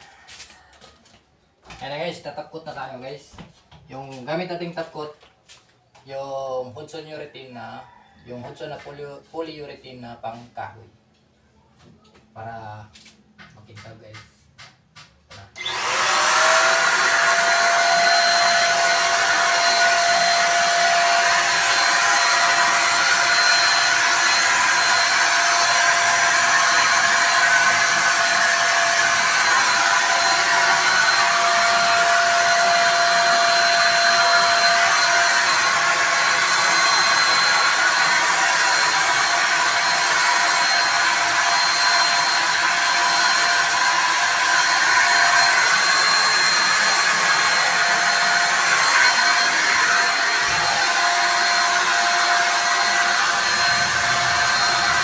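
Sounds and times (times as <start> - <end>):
electric paint spray gun motor: 15.6 - 55.0.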